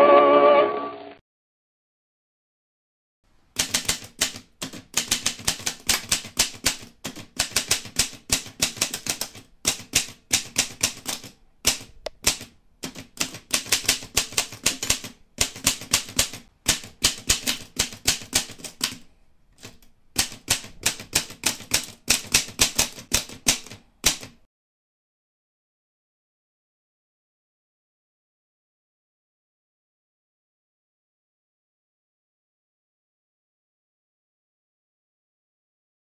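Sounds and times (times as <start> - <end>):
typewriter keys clacking: 3.6 - 24.4.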